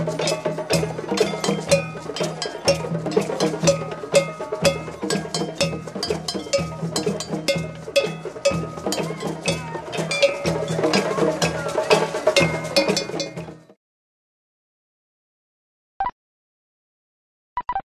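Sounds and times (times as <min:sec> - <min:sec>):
metal double bell struck: 0:00.0 - 0:13.5
djembes drumming: 0:00.0 - 0:13.8.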